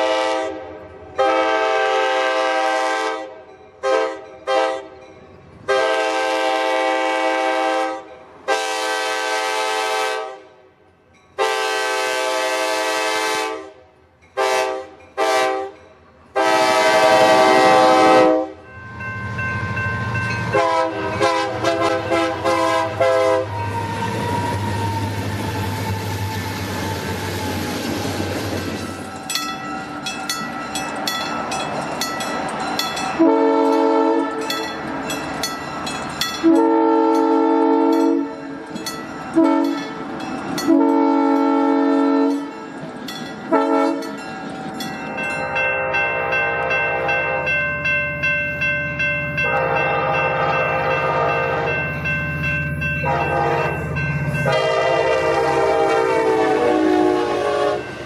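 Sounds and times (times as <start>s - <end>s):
locomotive horn blasts: 0.0s - 5.0s, 5.7s - 10.6s, 11.4s - 15.8s, 16.4s - 18.6s, 20.5s - 24.7s, 33.2s - 34.6s, 36.4s - 38.5s, 39.3s - 42.5s, 43.5s - 44.2s, 45.4s - 47.6s, 49.4s - 51.9s, 53.0s - 58.0s
train rumbling past: 0.0s - 58.0s
crossing bells ringing: 14.1s - 25.9s, 28.6s - 58.0s
pulsing horn chord: 20.5s - 23.4s, 49.4s - 52.2s, 52.8s - 57.9s.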